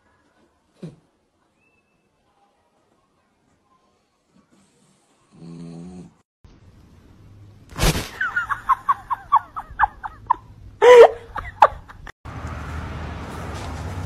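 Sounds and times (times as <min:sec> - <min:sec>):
pet snoring: 0:04.6 - 0:06.2.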